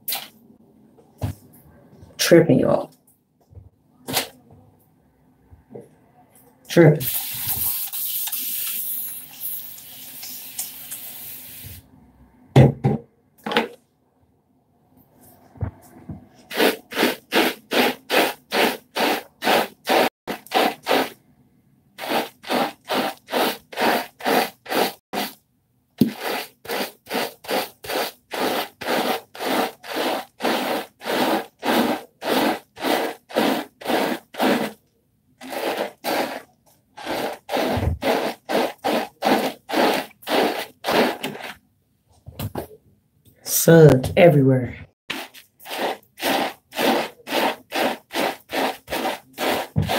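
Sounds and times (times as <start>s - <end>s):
spray bottle hissing: 7.0s - 11.8s, 16.5s - 21.1s, 22.0s - 25.4s, 26.0s - 34.8s, 35.4s - 36.4s, 37.0s - 41.5s, 45.1s - 49.9s
brush scrubbing hair: 16.4s - 21.2s, 22.0s - 25.4s, 26.0s - 34.8s, 35.4s - 41.6s, 45.1s - 49.9s.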